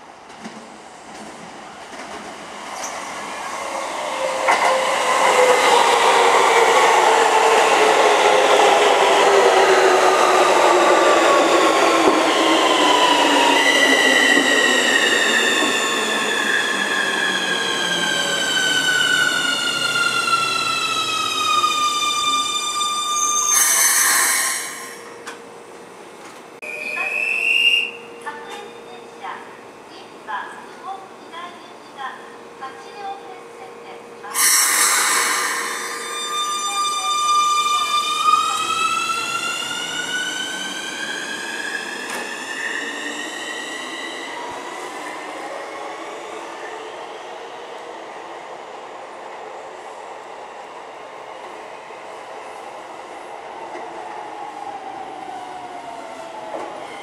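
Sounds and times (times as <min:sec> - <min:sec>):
train wheels rumbling on rail: 0:00.2 - 0:20.8
brake air hiss: 0:34.4 - 0:36.0.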